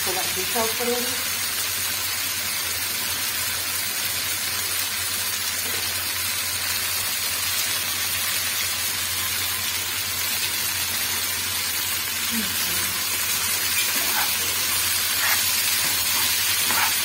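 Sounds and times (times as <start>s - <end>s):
meat sizzling in a frying pan: 0.0s - 17.0s.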